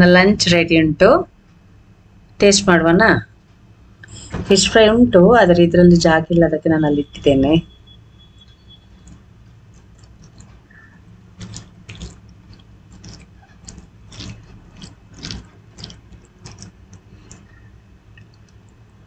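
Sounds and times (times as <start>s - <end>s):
low steady hum: 0.0s - 19.0s
fingers mixing rice on a plate: 8.5s - 19.0s.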